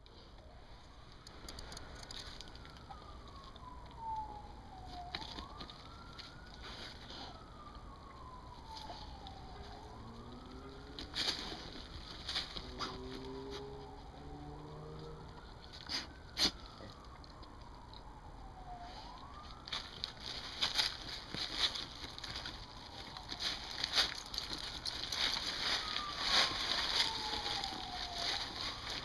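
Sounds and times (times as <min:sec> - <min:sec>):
faint wailing siren: 0:00.0 - 0:29.0
sharp clicks: 0:01.1 - 0:03.0
dogs digging in soil: 0:05.1 - 0:07.7, 0:08.6 - 0:14.6, 0:15.7 - 0:16.8, 0:19.6 - 0:29.0.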